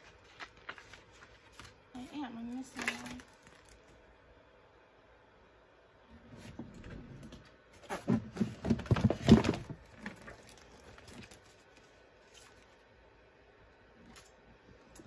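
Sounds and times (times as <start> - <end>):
paper rustling: 0.0 - 3.9, 7.8 - 12.8
objects knocking and rattling: 7.9 - 10.5.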